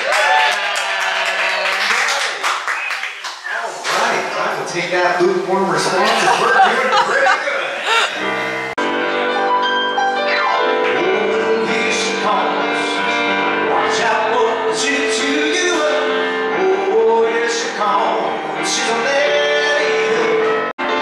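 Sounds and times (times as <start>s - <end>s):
piano playing: 5.4s - 21.0s
man singing into microphone: 10.9s - 20.7s.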